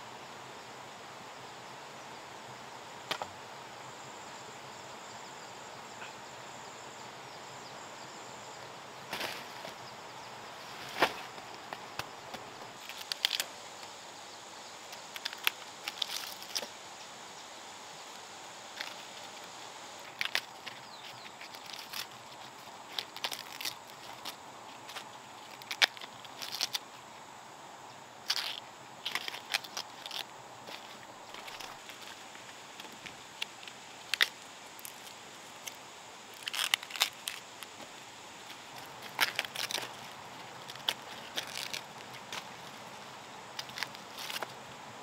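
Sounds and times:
high insect buzz: 0:00.0 - 0:45.0
sugarcane stalks clattering: 0:09.1 - 0:09.8, 0:10.7 - 0:13.5, 0:15.0 - 0:16.8, 0:18.7 - 0:26.9, 0:28.2 - 0:42.8, 0:43.5 - 0:44.6.

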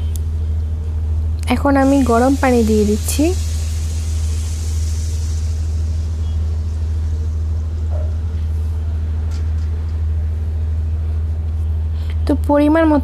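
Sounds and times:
steady low rumble: 0:00.0 - 0:13.0
water pouring into a pan: 0:01.8 - 0:07.6.

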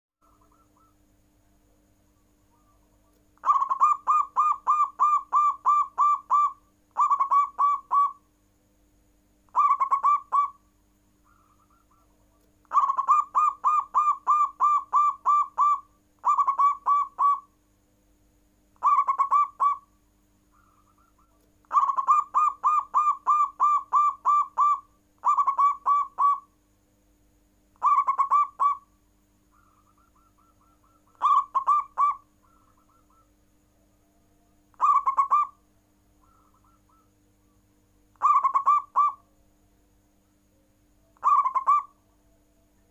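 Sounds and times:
dove cooing: 0:00.2 - 0:01.0, 0:02.5 - 0:08.2, 0:09.5 - 0:10.6, 0:11.2 - 0:17.5, 0:18.8 - 0:19.9, 0:20.5 - 0:26.5, 0:27.8 - 0:28.9, 0:29.5 - 0:33.3, 0:34.7 - 0:35.6, 0:36.2 - 0:37.1, 0:38.2 - 0:39.2, 0:41.2 - 0:42.0
faint bird calls: 0:00.2 - 0:08.3, 0:09.5 - 0:17.6, 0:18.8 - 0:26.6, 0:27.7 - 0:39.5, 0:40.3 - 0:42.9.

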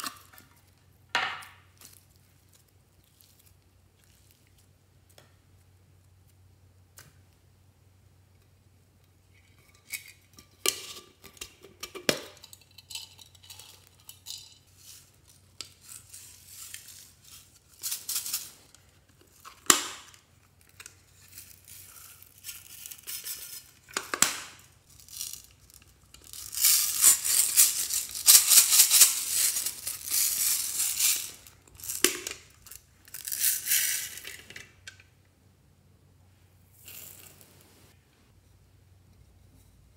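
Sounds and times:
small beads rattling: 0:12.4 - 0:18.7, 0:20.6 - 0:23.9, 0:24.8 - 0:34.5, 0:36.8 - 0:37.5.

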